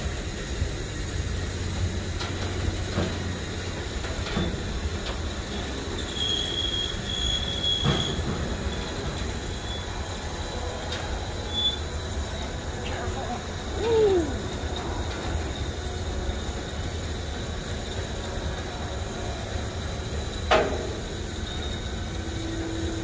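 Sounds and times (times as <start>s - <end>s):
knocks and clanks on steel ramps: 1.7s - 13.5s, 14.4s - 21.8s
high metallic squeal: 5.5s - 12.5s, 21.1s - 23.0s.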